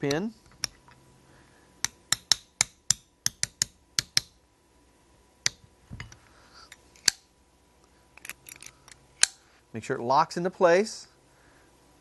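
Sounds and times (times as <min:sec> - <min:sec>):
small hammer tapping metal: 0:01.8 - 0:04.4.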